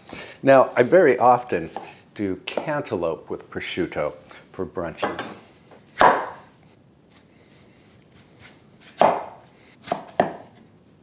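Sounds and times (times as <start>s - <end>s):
knife chopping on cutting board: 6.0s - 6.4s, 8.8s - 10.4s.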